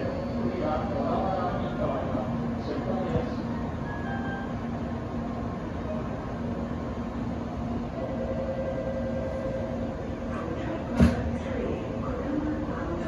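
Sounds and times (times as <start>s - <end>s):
trains humming at platform: 0.0s - 13.0s
higher steady tone: 3.4s - 10.4s.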